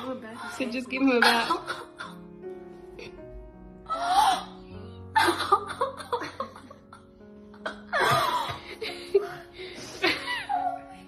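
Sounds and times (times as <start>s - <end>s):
woman crying and laughing: 0.0s - 2.2s, 5.2s - 11.0s
background music: 0.0s - 11.0s.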